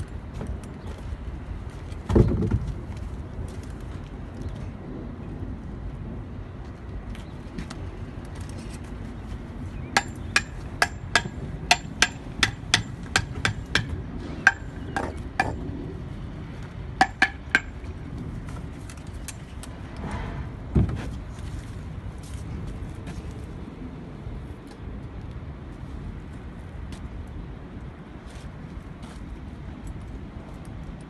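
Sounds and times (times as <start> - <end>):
trowel tapping on concrete block: 10.0 - 15.6, 17.0 - 17.8.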